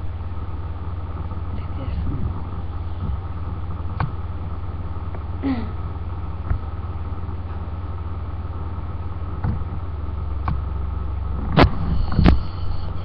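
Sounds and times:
electrical hum and hiss: 0.0 - 13.0.

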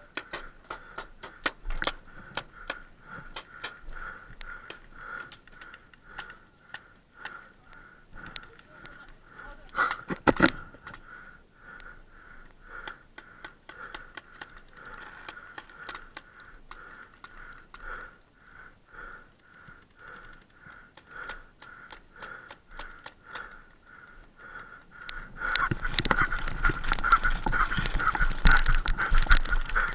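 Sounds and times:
loud close cracks: 19.8 - 29.9.

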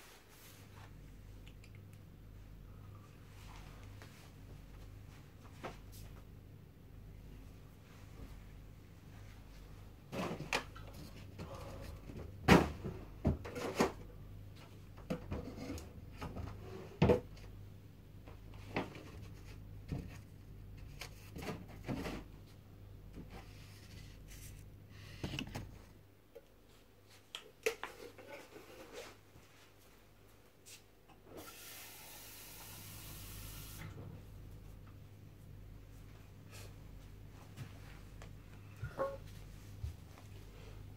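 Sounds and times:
steady hiss: 31.4 - 34.0.

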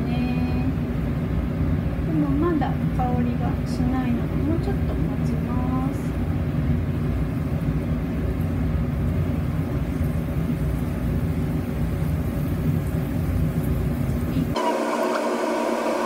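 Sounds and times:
low kitchen rumble: 0.0 - 16.0
oil hissing in frying pan: 6.0 - 16.0.

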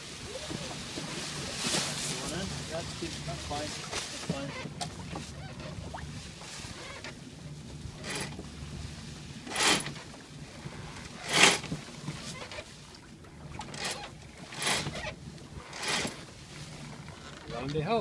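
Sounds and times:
low rumble: 0.0 - 12.0
water washing along hull: 0.0 - 18.0.

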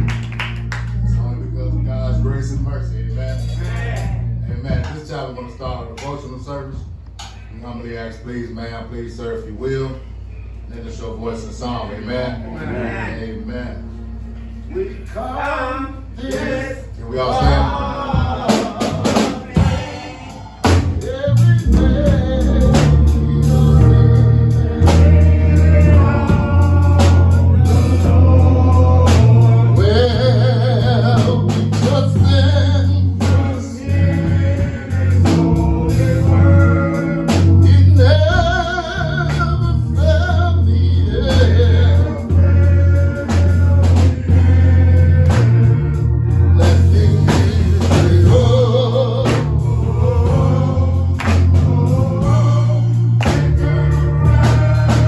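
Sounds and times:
heavy bass line: 0.0 - 7.1, 7.9 - 55.0
man leading gospel song: 0.0 - 55.0
drum kit: 2.5 - 5.8, 17.3 - 55.0
congregation singing: 10.6 - 55.0.

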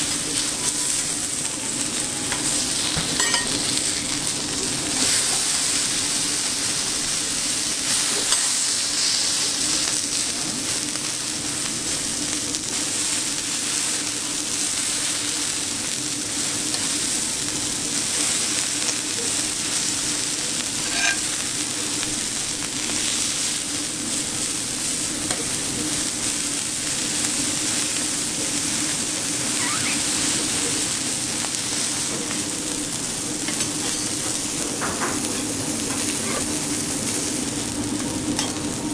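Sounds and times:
steak sizzling on a griddle: 0.0 - 38.9
metal spatulas tapping and scraping: 2.3 - 3.7, 20.8 - 21.3.

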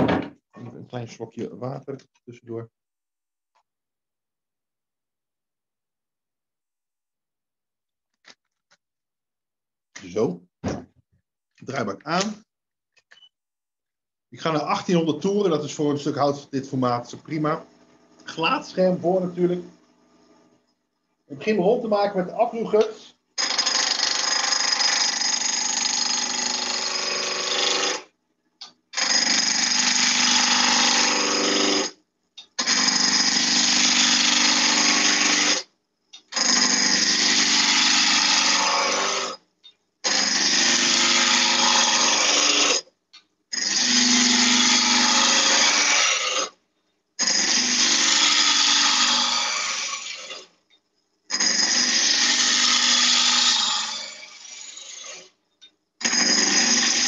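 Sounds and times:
gouge cutting wood on a lathe: 23.4 - 28.1, 29.0 - 31.9, 32.6 - 35.6, 36.4 - 39.4, 40.1 - 42.8, 43.6 - 46.5, 47.3 - 50.4, 51.4 - 55.2, 56.0 - 57.0.

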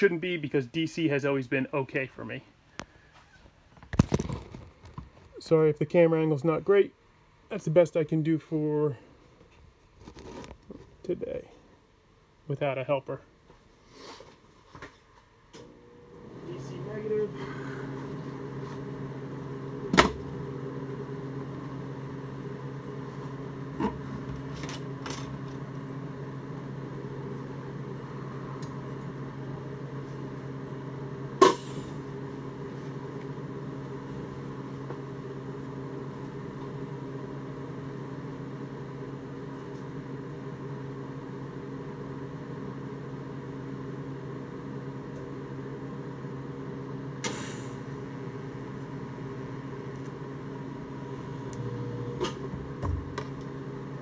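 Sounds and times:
welder humming: 15.5 - 54.0.

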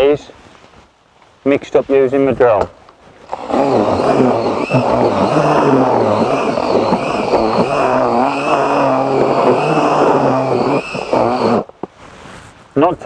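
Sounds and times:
paddle mixer churning groundbait: 3.3 - 11.8
drill motor whirring: 3.3 - 11.9.

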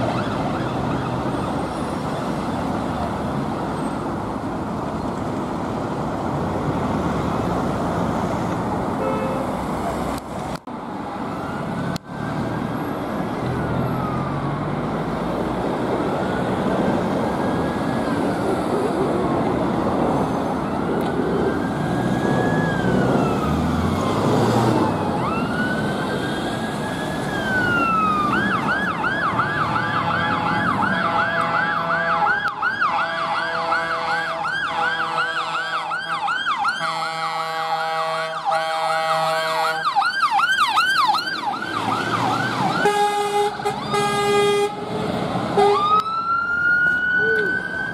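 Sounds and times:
fire engine siren: 0.0 - 4.6, 10.8 - 47.9
road traffic: 0.0 - 47.9
air horn blasts: 9.0 - 9.6, 36.8 - 39.8, 42.8 - 44.9, 45.6 - 46.0.

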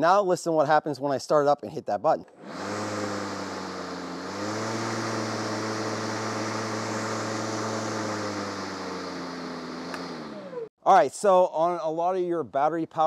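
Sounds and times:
electric lawn mower humming: 2.4 - 10.7.

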